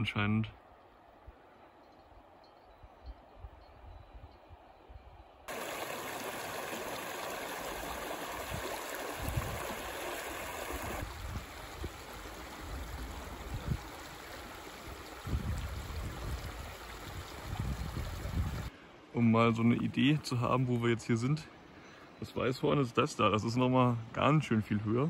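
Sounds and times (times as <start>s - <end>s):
stream rushing over stones: 5.5s - 18.7s.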